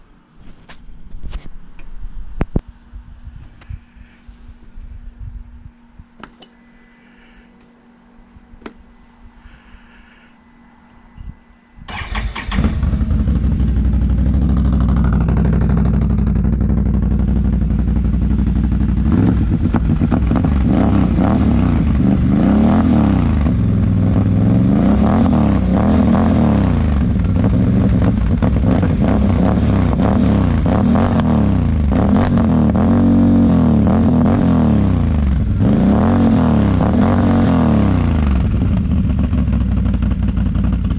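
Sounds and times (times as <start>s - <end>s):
quad engine idling: 11.9s - 33.0s, 36.8s - 40.9s
engine revving blips: 11.9s - 38.8s.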